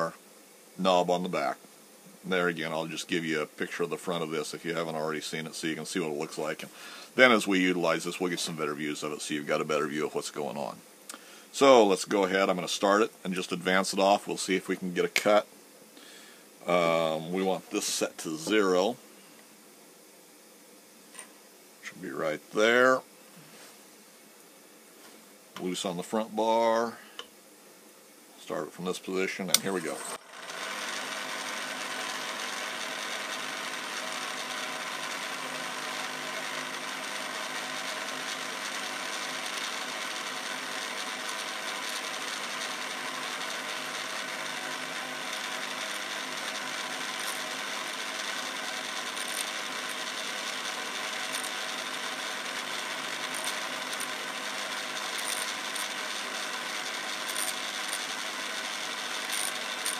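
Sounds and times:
grinder motor whirring: 29.5 - 59.9
tool bit grinding on wheel: 29.5 - 59.9.

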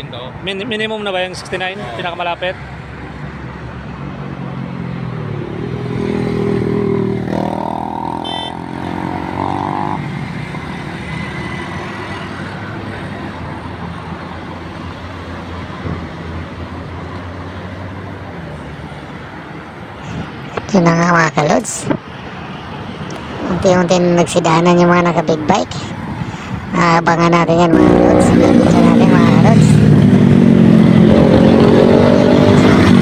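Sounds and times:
highway traffic hum: 0.0 - 33.0
vehicle accelerating past: 4.4 - 12.9, 27.7 - 33.0.

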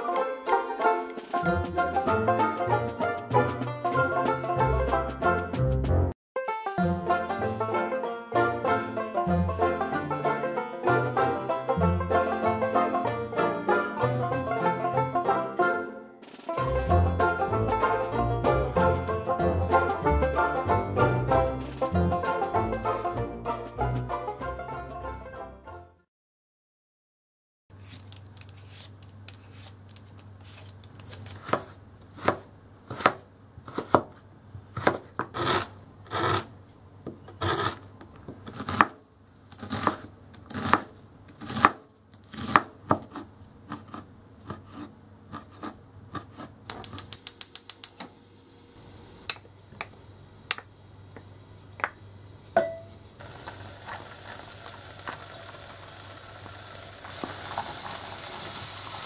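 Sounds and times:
knife chopping on wooden board: 31.4 - 34.2, 34.8 - 36.4, 38.5 - 39.0, 39.6 - 46.8
butter sizzling in a pot: 53.2 - 59.0.

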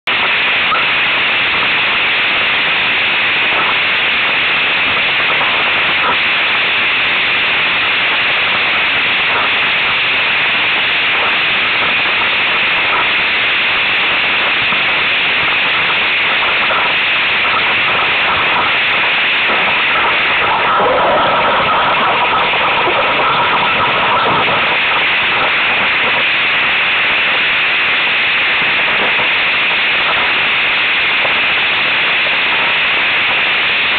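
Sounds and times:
steady whistling tone: 16.7 - 27.3.

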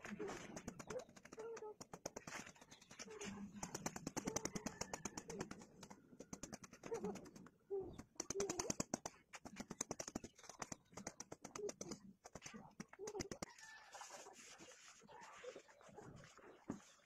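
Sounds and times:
dove cooing: 0.0 - 2.0, 3.0 - 5.9, 6.6 - 9.0, 11.4 - 13.8.

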